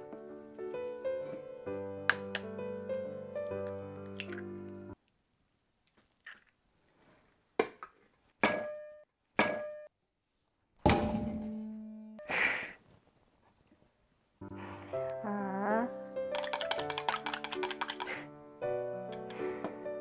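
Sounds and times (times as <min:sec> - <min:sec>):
eggshell tapping on metal rim: 0:16.4 - 0:18.1.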